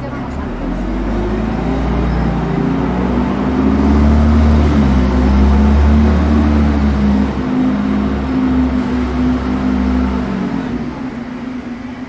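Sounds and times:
deep machine hum: 0.0 - 12.0.

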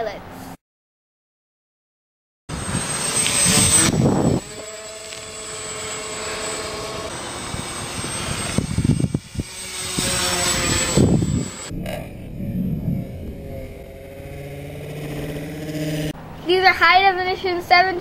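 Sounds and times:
model airplane motor droning: 2.5 - 16.2.

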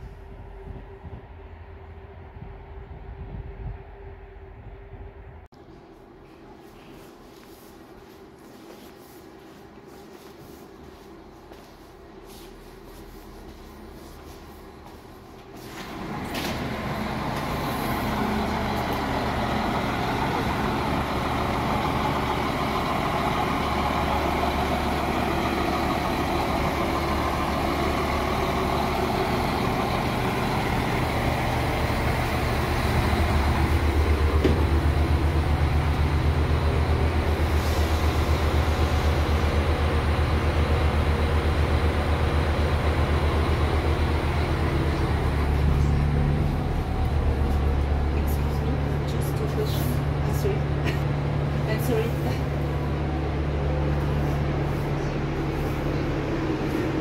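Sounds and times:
diesel engine idling: 12.5 - 57.0.

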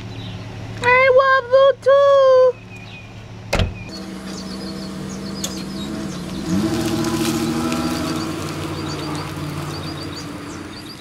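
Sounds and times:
truck engine running: 2.6 - 11.0
truck door slamming: 3.5 - 3.9.

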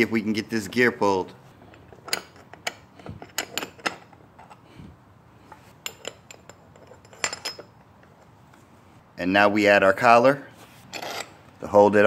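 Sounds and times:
metal tool clicking and clinking: 1.7 - 4.6, 5.8 - 7.8.

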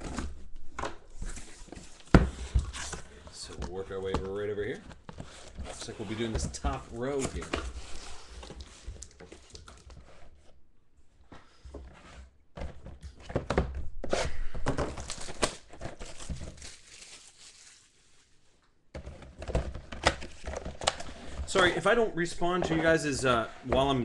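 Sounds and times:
shrink-wrap tearing and crinkling: 15.0 - 18.3.

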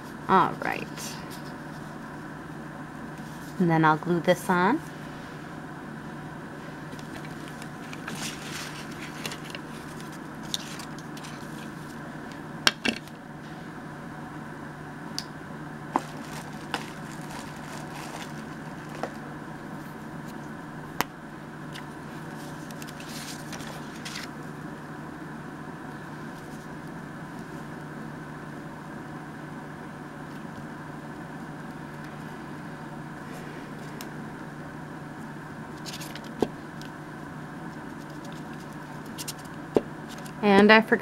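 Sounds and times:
steady low hum: 0.0 - 41.0
paper rustling and sliding: 6.9 - 12.0, 16.0 - 19.2, 22.2 - 24.3, 35.8 - 36.3.

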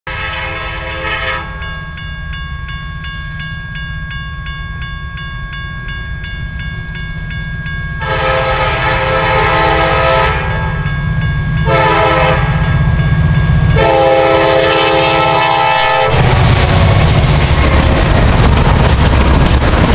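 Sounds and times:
locomotive horn blasts: 0.1 - 1.7, 8.0 - 10.9, 11.6 - 12.8, 13.7 - 16.6
crossing bell ringing: 0.1 - 19.9.

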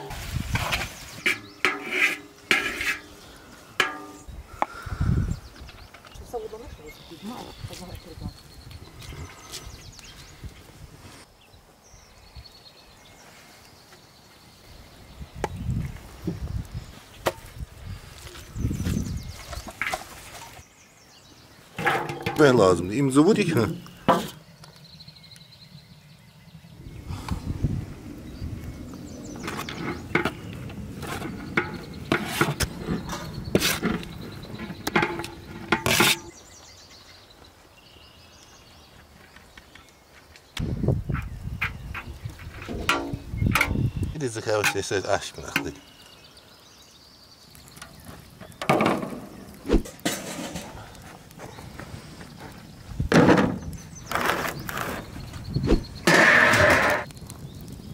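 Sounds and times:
quiet outdoor background: 0.0 - 57.9
metal spoon scraping pot: 0.6 - 3.2, 31.0 - 36.4.

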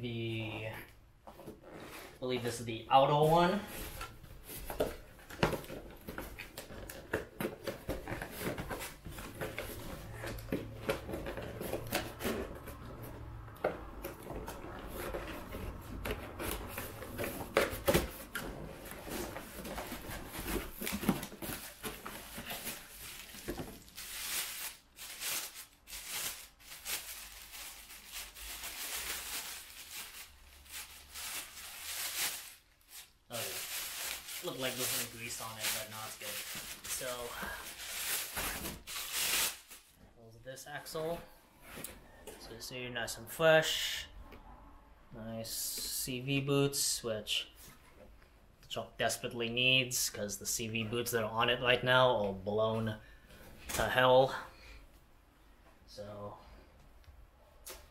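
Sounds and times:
cardboard packaging being opened: 14.0 - 39.9
plastic wrap crinkling: 18.2 - 40.0.

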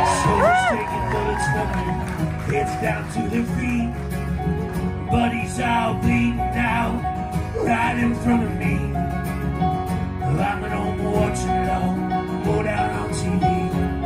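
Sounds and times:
strummed acoustic guitar: 0.0 - 14.0.

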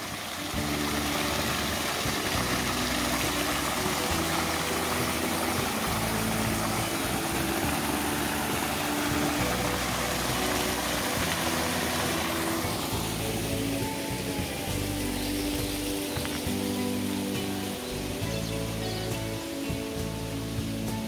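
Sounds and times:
background music: 0.0 - 21.0
water flowing and splashing: 0.0 - 21.0.

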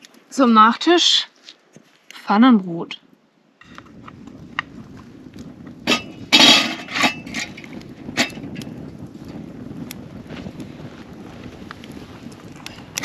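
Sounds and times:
wood fire crackling: 0.0 - 13.0
metal pot and lid clattering: 5.9 - 7.6, 8.2 - 8.5.

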